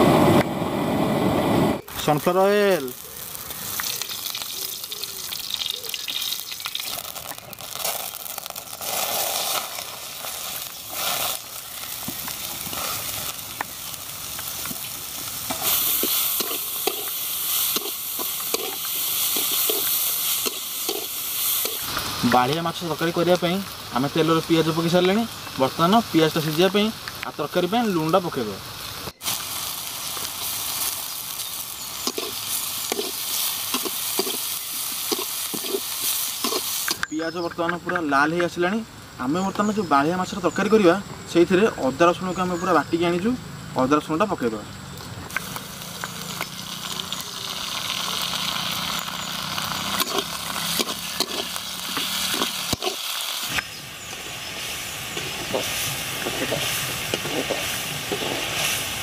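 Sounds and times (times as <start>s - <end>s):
onions sizzling in oil: 1.8s - 37.0s, 45.3s - 59.0s
metal spatula scraping pan: 50.0s - 52.8s.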